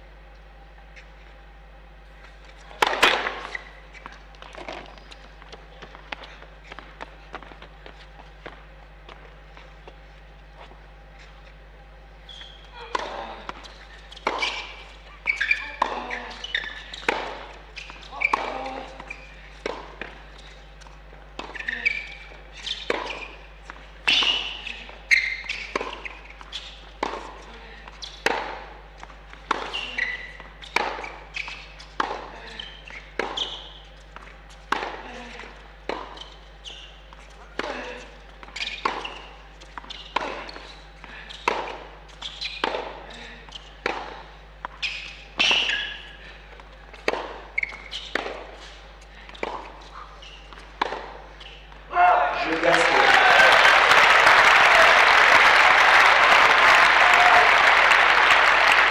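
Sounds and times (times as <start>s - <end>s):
racket striking tennis ball: 2.8s - 3.5s, 46.9s - 51.2s
racquet striking tennis ball: 2.8s - 3.5s
shoe squeaks on court: 3.0s - 5.4s, 11.0s - 19.7s, 20.3s - 27.0s, 29.6s - 35.2s, 35.9s - 46.3s, 46.9s - 51.9s
tennis ball bouncing: 12.3s - 36.4s, 37.1s - 51.8s.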